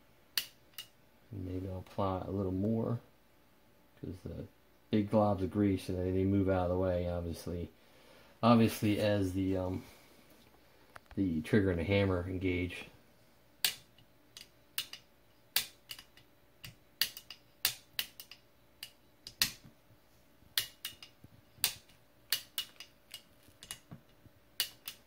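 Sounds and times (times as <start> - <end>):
metallic clicks of gun hammer: 24.6 - 25.0.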